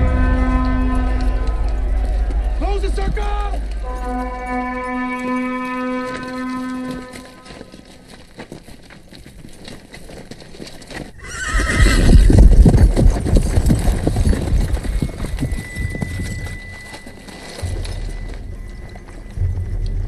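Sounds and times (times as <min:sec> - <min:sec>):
galloping hoofbeats: 0:00.0 - 0:20.0
scattered hoof clatter: 0:01.3 - 0:20.0
horse whinnying: 0:11.2 - 0:12.7.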